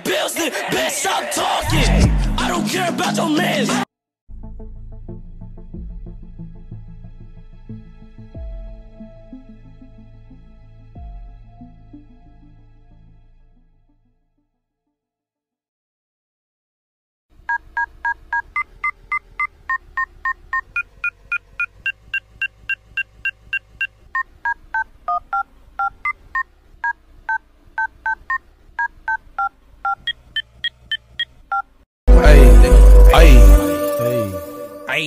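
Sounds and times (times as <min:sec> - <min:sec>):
phone keypad tones beeping: 0:17.5 - 0:26.2, 0:26.8 - 0:31.7.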